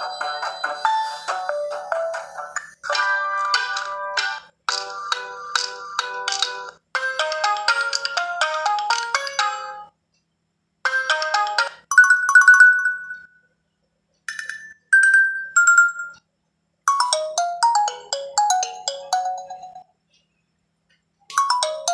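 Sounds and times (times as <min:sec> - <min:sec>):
electronic ringtone chime melodies: 0:00.0 - 0:04.1, 0:07.0 - 0:09.9, 0:10.9 - 0:13.5, 0:14.3 - 0:16.3, 0:16.9 - 0:19.9, 0:21.3 - 0:21.9.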